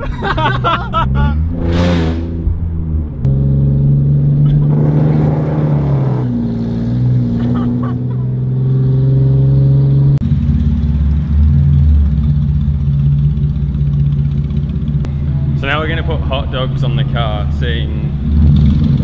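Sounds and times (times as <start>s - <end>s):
person speaking: 0.0s - 1.4s
whooshing swish: 1.4s - 3.0s.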